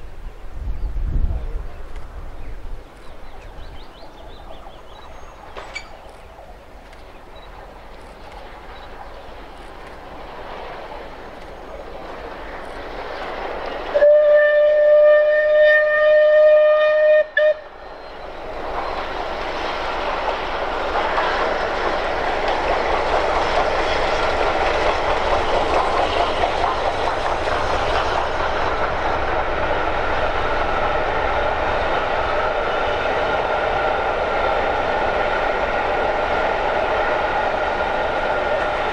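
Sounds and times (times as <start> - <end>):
train wheels clattering: 3.0 - 14.0, 17.9 - 38.9
steam locomotive whistle: 13.9 - 18.0.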